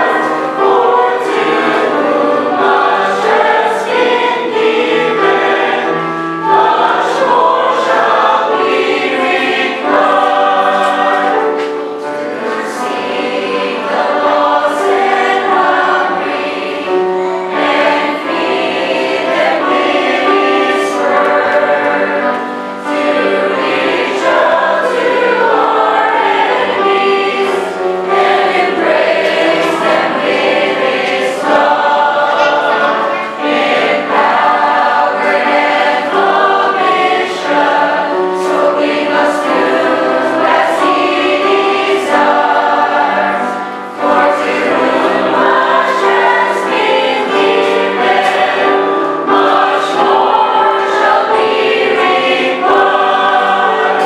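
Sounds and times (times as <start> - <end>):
mixed choir singing gospel: 0.0 - 54.0.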